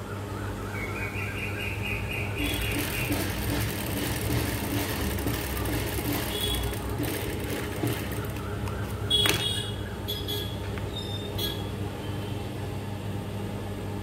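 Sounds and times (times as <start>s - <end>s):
sewing machine running: 2.4s - 9.4s.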